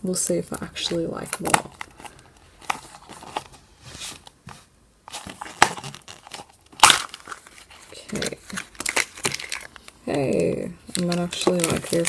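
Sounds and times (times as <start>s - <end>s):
plastic capsule crinkling: 0.5s - 3.5s, 5.1s - 12.0s
plastic capsule snapping open: 6.8s - 7.4s.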